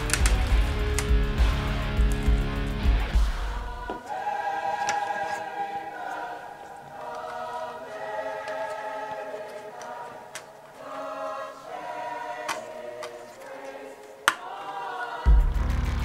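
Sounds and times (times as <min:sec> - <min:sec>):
sharp clicks: 0:00.0 - 0:01.2
choir singing held chords: 0:00.0 - 0:16.0.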